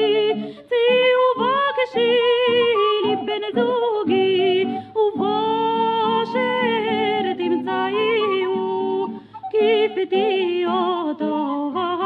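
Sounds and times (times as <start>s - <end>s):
instrumental accompaniment: 0.0s - 12.0s
woman singing: 0.0s - 12.0s.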